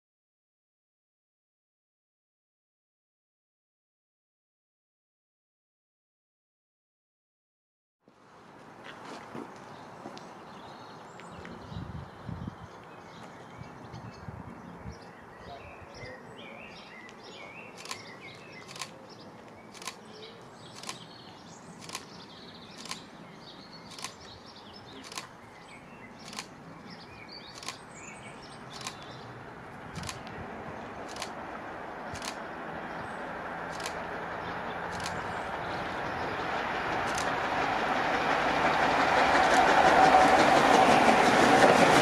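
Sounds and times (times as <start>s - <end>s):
outdoor background noise: 8.0s - 42.0s
birds chirping: 9.5s - 37.6s
sharp clicks: 17.1s - 19.0s, 19.7s - 23.2s, 23.8s - 25.4s, 26.2s - 26.6s, 27.4s - 27.9s, 28.7s - 29.2s, 30.0s - 30.4s, 31.0s - 31.4s, 32.1s - 32.5s, 33.7s - 34.1s, 34.9s - 35.3s, 37.0s - 37.4s
train rumbling: 22.8s - 23.0s, 23.9s - 24.2s, 25.0s - 25.3s, 26.2s - 26.5s, 27.6s - 27.8s, 28.8s - 29.0s, 29.8s - 42.0s.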